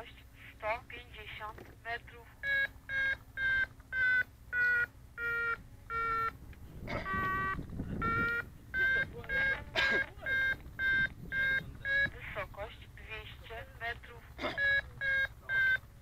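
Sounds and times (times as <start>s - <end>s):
variometer beeping: 2.4s - 12.4s, 14.4s - 16.0s.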